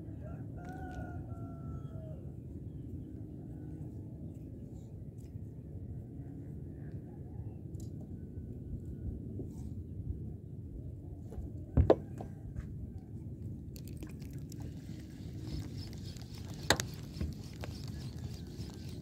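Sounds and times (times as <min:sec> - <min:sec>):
sharp knocks on a boat: 0:11.8 - 0:12.3.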